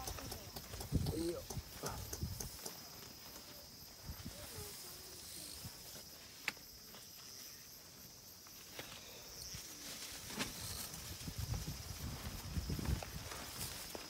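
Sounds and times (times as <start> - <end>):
insects chirring: 0.0 - 14.0
low shuffling: 8.6 - 14.0.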